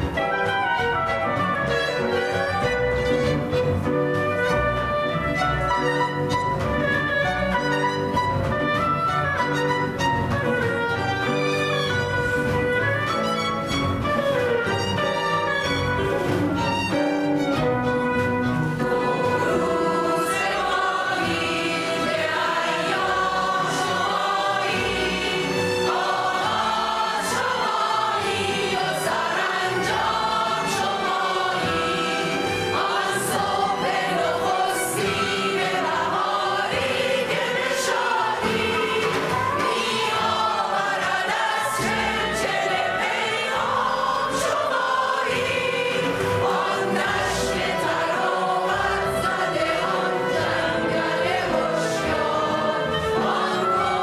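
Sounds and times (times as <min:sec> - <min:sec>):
piano: 0:00.0 - 0:54.0
strings: 0:00.0 - 0:54.0
mixed choir singing: 0:18.3 - 0:54.0.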